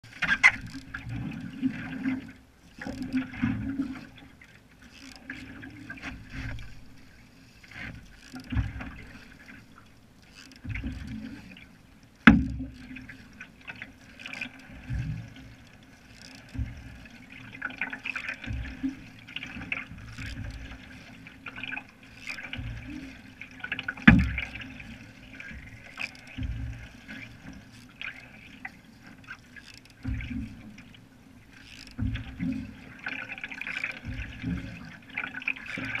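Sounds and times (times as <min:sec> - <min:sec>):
paddle splashing in water: 0:00.0 - 0:36.0.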